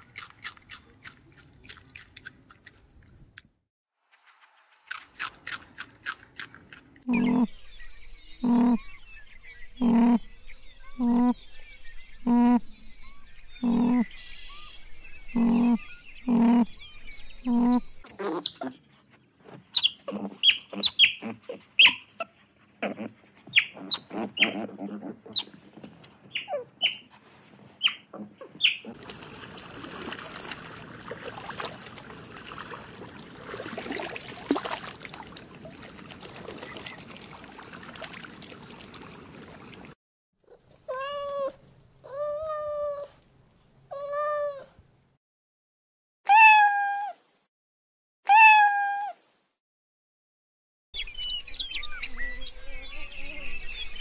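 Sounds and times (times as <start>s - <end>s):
rough noise with faint calls: 4.1s - 22.4s, 27.8s - 39.9s, 51.0s - 54.0s
low pitched animal calls: 8.4s - 8.9s, 9.8s - 10.3s, 10.9s - 11.4s, 13.6s - 14.1s, 15.3s - 16.7s, 17.4s - 18.8s.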